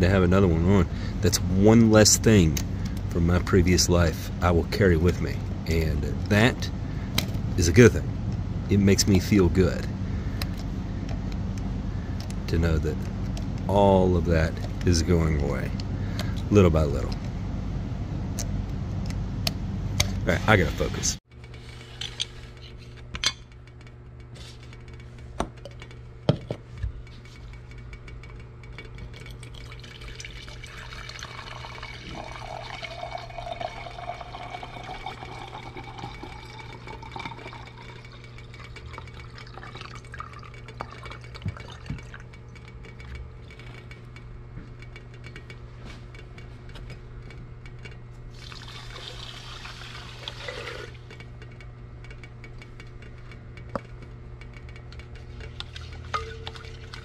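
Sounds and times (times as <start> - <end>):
steady low hum: 0.0 - 57.0
liquid pouring into glass beaker: 29.2 - 42.3, 48.3 - 51.0
glassware clinking: 56.1 - 57.0.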